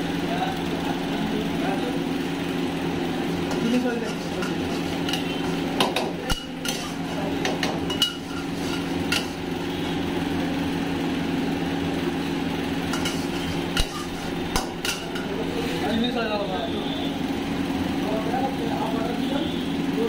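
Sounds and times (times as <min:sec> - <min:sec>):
mechanical hum: 0:00.0 - 0:20.0
metal ladle scraping a wok: 0:03.5 - 0:05.7, 0:06.3 - 0:09.5, 0:12.8 - 0:15.2.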